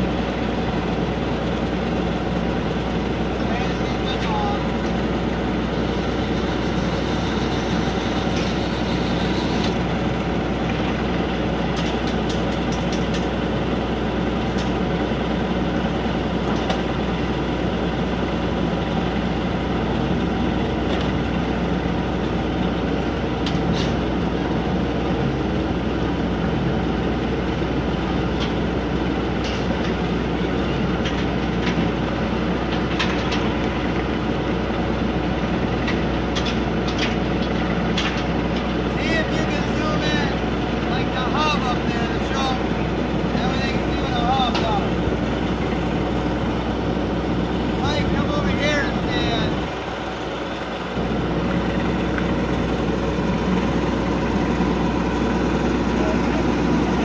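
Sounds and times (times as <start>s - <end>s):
ferris wheel drive motor: 0.0s - 57.0s.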